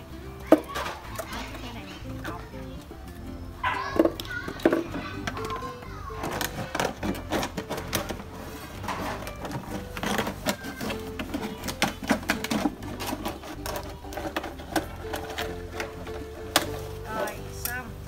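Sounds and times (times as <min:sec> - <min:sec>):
scissors cutting plastic bottle: 0:08.8 - 0:16.8.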